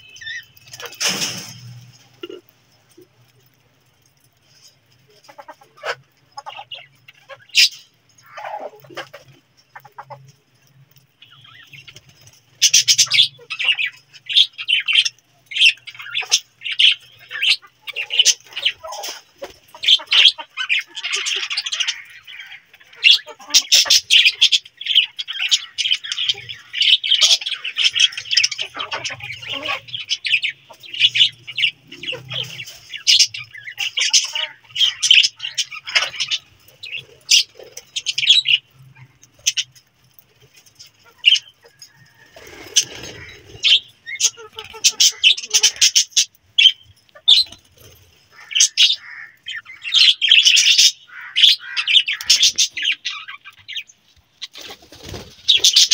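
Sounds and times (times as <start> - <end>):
budgerigars chattering: 12.6 - 39.7, 42.8 - 47.6, 48.3 - 53.9.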